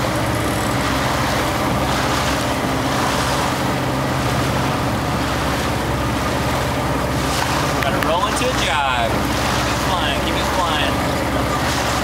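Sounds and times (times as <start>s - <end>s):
motorboat engine running: 0.0s - 12.0s
water rushing past hull: 0.0s - 12.0s.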